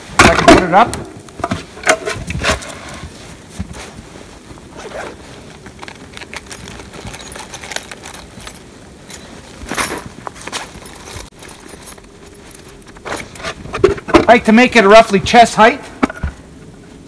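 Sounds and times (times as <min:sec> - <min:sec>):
coat rustling: 0:01.6 - 0:14.0
gear clicking and jingling: 0:05.6 - 0:13.6.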